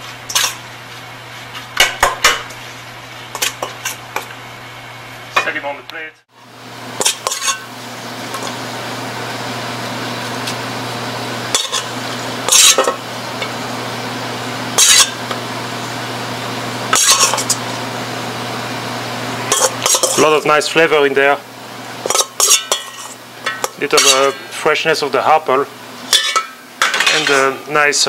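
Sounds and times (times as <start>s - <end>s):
kitchen hum: 0.0s - 28.0s
utensils clinking on plate and bowl: 7.0s - 7.7s, 11.6s - 11.9s, 19.5s - 20.3s, 22.0s - 24.4s, 26.1s - 27.5s.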